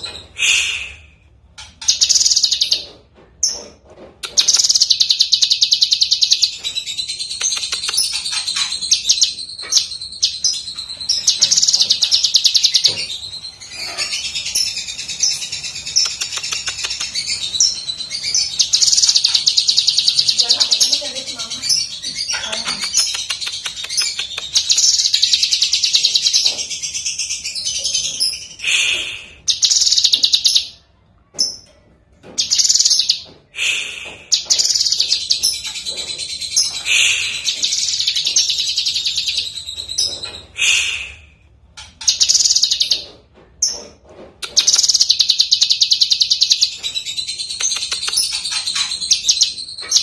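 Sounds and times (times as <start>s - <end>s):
bird singing chattering trills: 1.6s - 3.6s, 4.2s - 30.8s, 32.4s - 33.3s, 33.9s - 40.9s, 41.9s - 43.8s, 44.4s - 50.0s.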